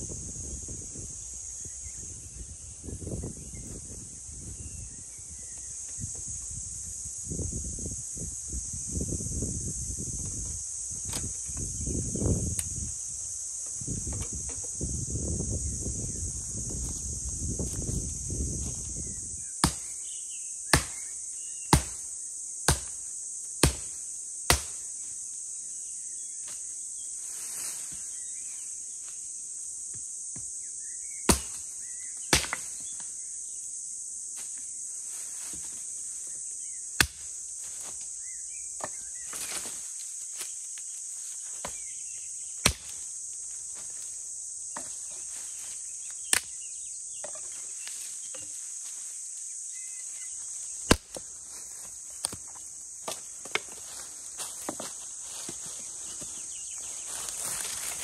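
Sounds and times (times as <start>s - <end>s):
insects droning: 0.0s - 58.0s
axe chopping wood: 19.6s - 19.9s, 20.7s - 21.0s, 21.7s - 22.0s, 22.7s - 23.0s, 23.6s - 24.8s, 31.3s - 31.6s, 32.3s - 32.7s, 37.0s - 37.3s, 42.6s - 43.0s, 50.8s - 51.2s.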